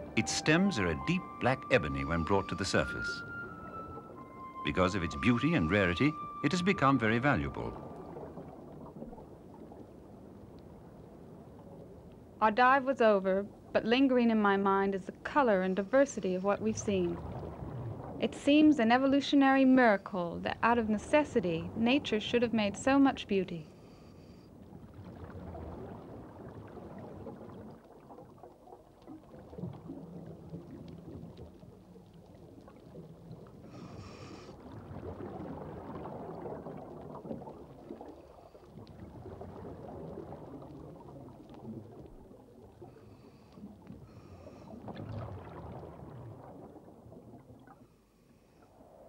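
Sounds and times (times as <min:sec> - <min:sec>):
underwater bubbles burbling: 0:00.0 - 0:12.4, 0:16.6 - 0:19.2, 0:24.6 - 0:48.0.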